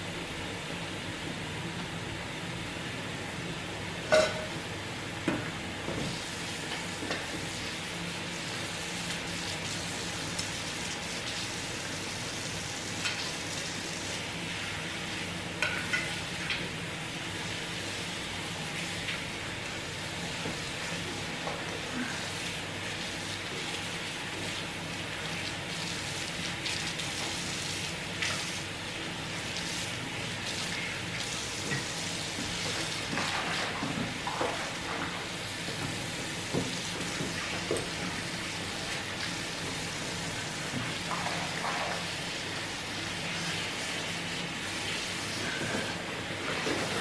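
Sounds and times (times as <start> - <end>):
dishes clinking and knocking: 4.1 - 4.5.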